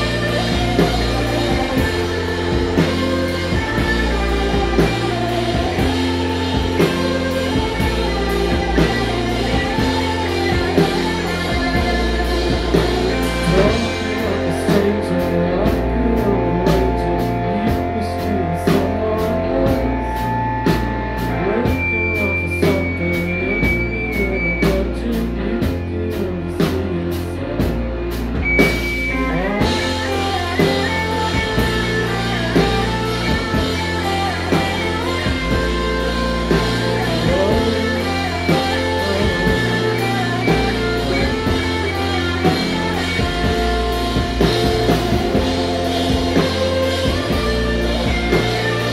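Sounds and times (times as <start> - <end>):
live rock band playing: 0.0 - 48.9.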